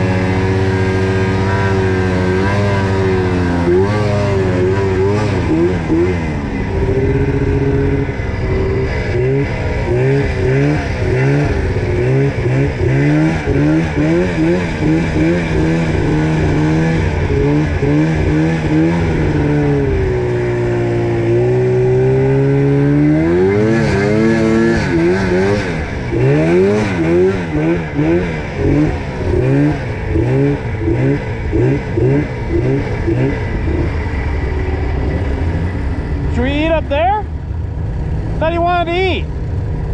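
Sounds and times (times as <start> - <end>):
snowmobile engine revving: 0.0 - 39.9.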